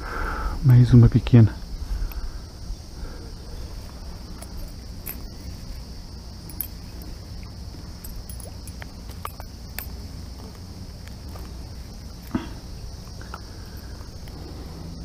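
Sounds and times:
insect chorus chirring: 0.0s - 15.0s
small clicks and rustles: 3.8s - 12.4s.

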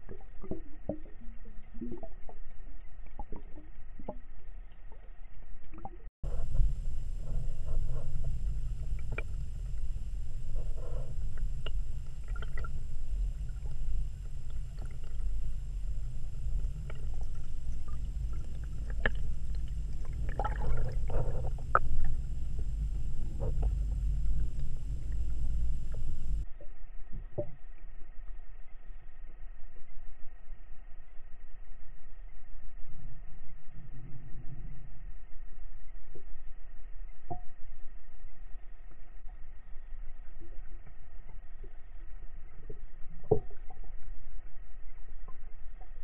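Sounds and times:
underwater rumble of moving water: 0.0s - 46.0s
underwater clicks and knocks: 5.6s - 26.4s.

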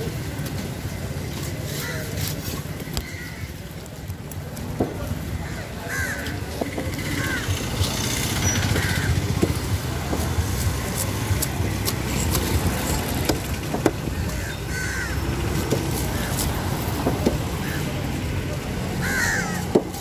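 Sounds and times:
road traffic rumble: 0.0s - 20.0s
crow calls: 5.4s - 7.7s, 8.4s - 9.3s, 14.1s - 15.2s, 19.0s - 19.8s.

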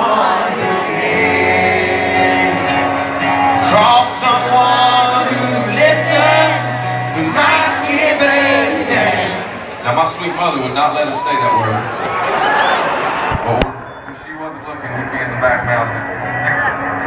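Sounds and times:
man singing: 0.0s - 9.5s
acoustic guitar: 0.0s - 10.1s.

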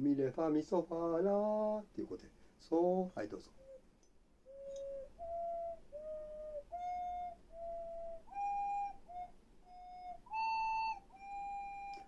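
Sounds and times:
ocarina notes: 3.0s - 12.0s.

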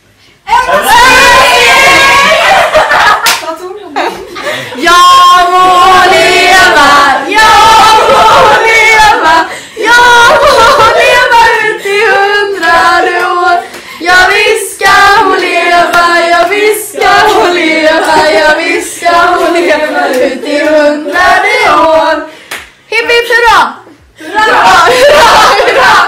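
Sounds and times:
group of women singing: 4.4s - 22.5s, 24.2s - 26.0s.

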